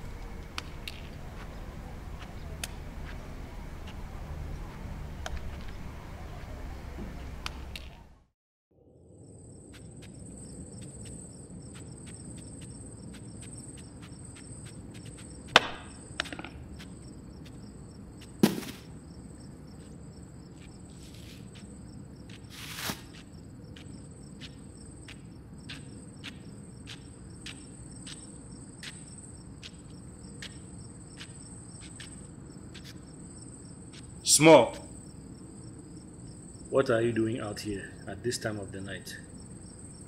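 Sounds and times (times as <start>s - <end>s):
crickets chirping: 0.0s - 40.0s
sharp knocks: 15.5s - 16.6s, 18.3s - 18.9s
loud thud: 18.4s - 18.9s.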